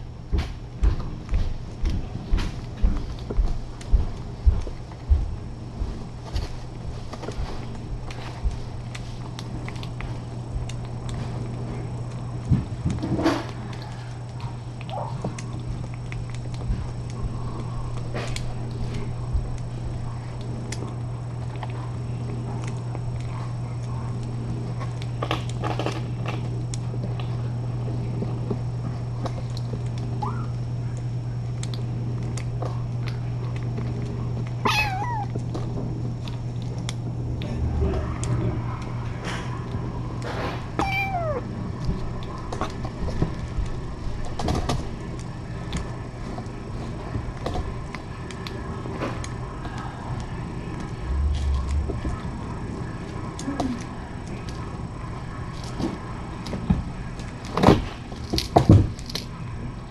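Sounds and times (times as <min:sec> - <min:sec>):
steady low hum: 0:00.0 - 0:59.9
kittens mewing: 0:34.6 - 0:35.4, 0:40.7 - 0:41.5.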